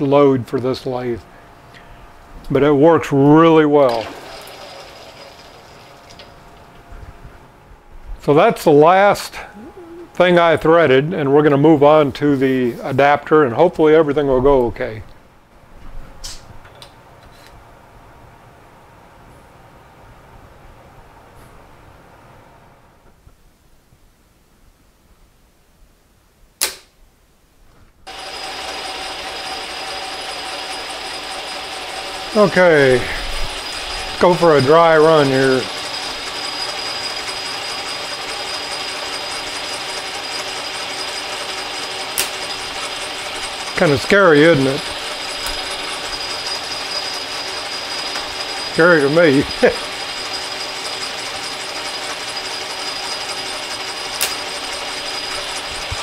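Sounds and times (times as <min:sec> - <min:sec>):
metal lathe whirring: 0:02.6 - 0:06.8, 0:28.1 - 0:56.0
sharp click: 0:26.6 - 0:27.0, 0:42.2 - 0:42.4, 0:54.2 - 0:54.4.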